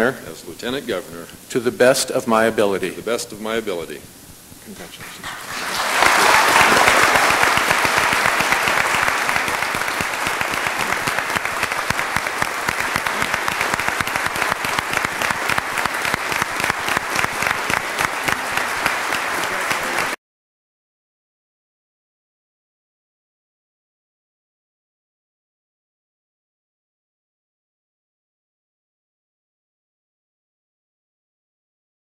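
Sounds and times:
large audience applauding: 0:05.0 - 0:20.2.

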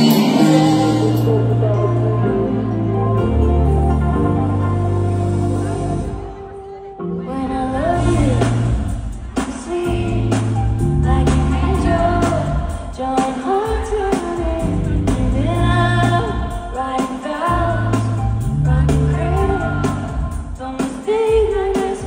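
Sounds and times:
steady drum beat: 0:00.0 - 0:01.4, 0:08.0 - 0:22.0
woman singing: 0:00.0 - 0:03.8, 0:06.2 - 0:22.0
bass notes: 0:00.0 - 0:06.4, 0:07.8 - 0:09.0, 0:09.9 - 0:12.7, 0:14.5 - 0:16.4, 0:17.6 - 0:20.2.

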